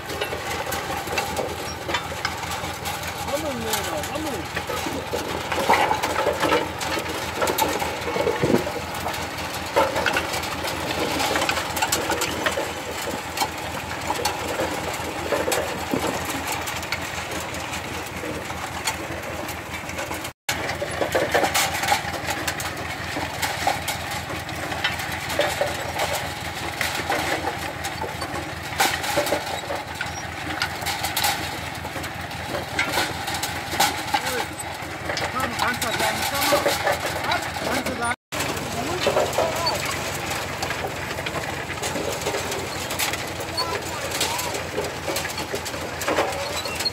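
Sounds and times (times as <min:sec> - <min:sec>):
harvesting machine engine running: 0:00.0 - 0:46.9
rattling and clicking: 0:00.0 - 0:46.9.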